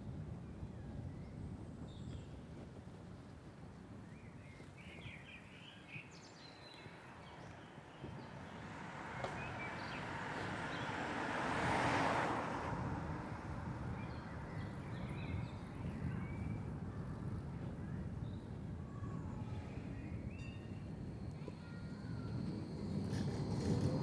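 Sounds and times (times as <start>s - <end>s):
vehicle passing: 8.3s - 14.6s.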